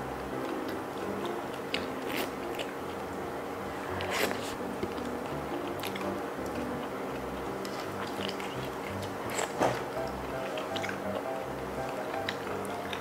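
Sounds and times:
background music with held tones: 0:00.0 - 0:13.0
clicks and smacks of eating clams: 0:00.4 - 0:02.8, 0:04.3 - 0:13.0.

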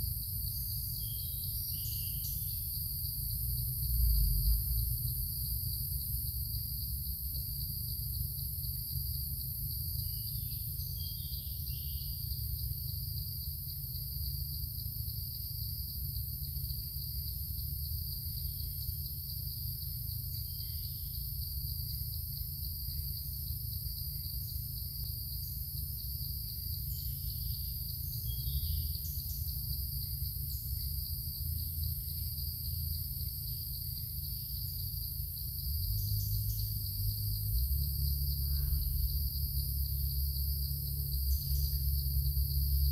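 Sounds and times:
insect chorus drone: 0:00.0 - 0:42.9
low rumble: 0:03.6 - 0:05.6.

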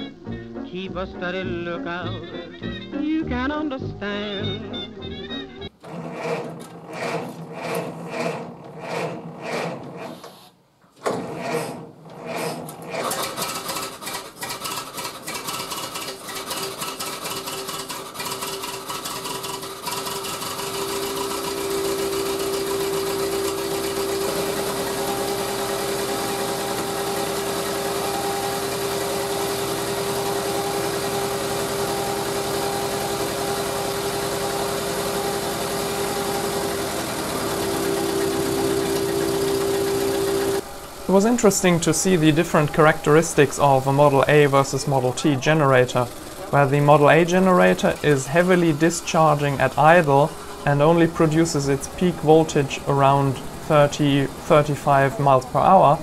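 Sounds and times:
car engine running: 0:14.8 - 0:56.0.

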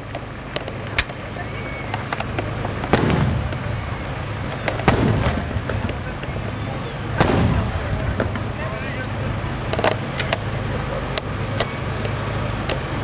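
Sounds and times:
firework cracks: 0:00.0 - 0:12.9
firework booms with rumble: 0:02.5 - 0:10.3.

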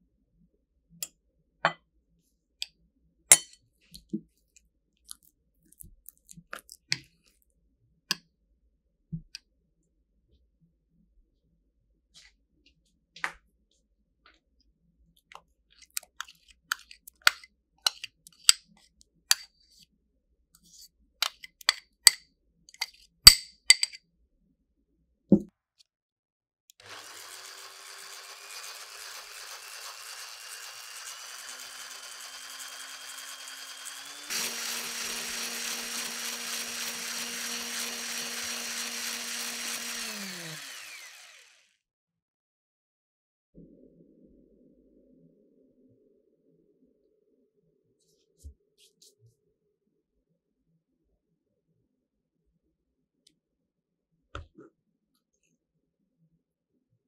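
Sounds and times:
electric hand mixer whining: 0:26.8 - 0:41.8.

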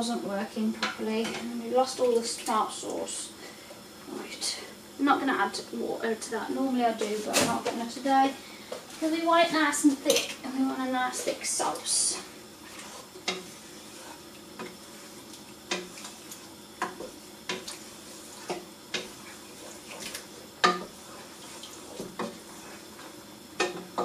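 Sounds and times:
wooden spoon stirring stew: 0:11.0 - 0:24.0
spoon knocking against pot: 0:20.6 - 0:20.9.

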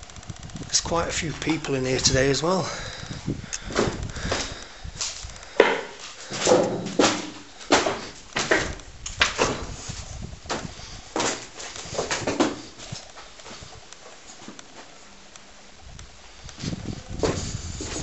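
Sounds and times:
footsteps crunching on debris: 0:00.6 - 0:15.2.

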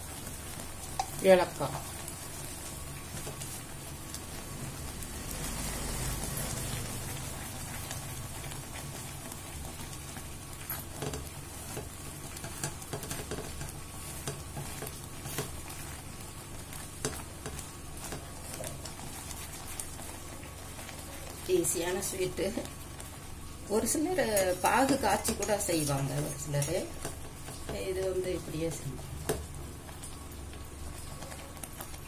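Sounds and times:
paste sizzling and bubbling in pan: 0:00.0 - 0:32.0
spatula stirring and scraping: 0:00.0 - 0:32.0
small scattered ticks and taps: 0:10.7 - 0:15.6.

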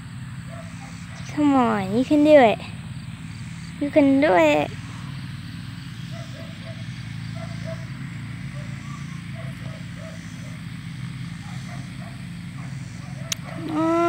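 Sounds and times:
faint short chirping calls: 0:00.5 - 0:14.0.

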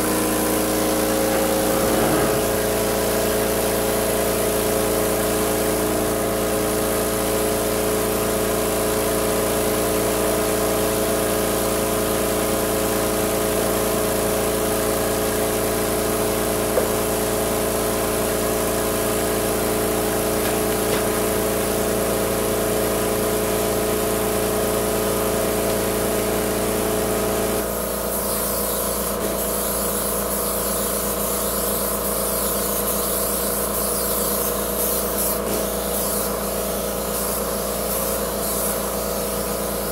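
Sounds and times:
spray gun hissing: 0:00.0 - 0:03.2, 0:32.2 - 0:39.8
sprayer motor humming: 0:00.0 - 0:03.6, 0:15.3 - 0:27.4.

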